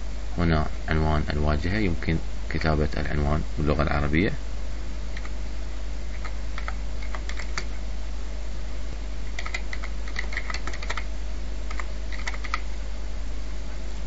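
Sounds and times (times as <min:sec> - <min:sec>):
low hum and hiss: 0:00.0 - 0:14.0
computer keyboard typing: 0:06.1 - 0:07.8, 0:09.3 - 0:11.1, 0:11.7 - 0:12.7.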